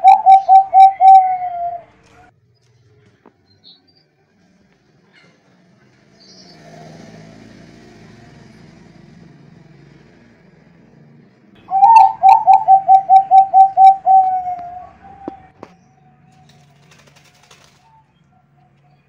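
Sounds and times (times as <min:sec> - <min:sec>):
dove cooing: 0:00.0 - 0:02.0, 0:11.6 - 0:15.6.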